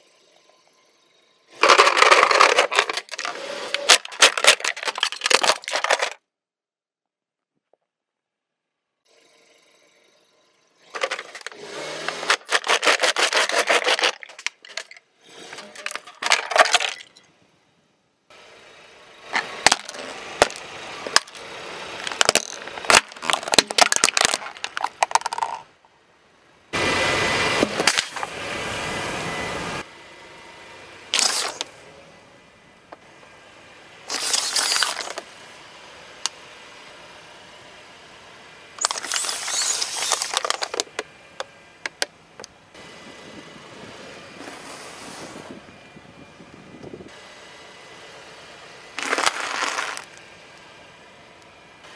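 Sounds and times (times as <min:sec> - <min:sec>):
plastic cracking under tyre: 0:01.6 - 0:06.2, 0:11.0 - 0:15.0, 0:19.4 - 0:21.4, 0:22.0 - 0:25.6, 0:34.1 - 0:35.2, 0:38.8 - 0:41.1, 0:49.0 - 0:50.2
tyre crunching objects: 0:01.6 - 0:06.2, 0:10.9 - 0:17.0, 0:19.4 - 0:25.6, 0:31.2 - 0:31.7, 0:34.1 - 0:35.2, 0:49.0 - 0:50.2.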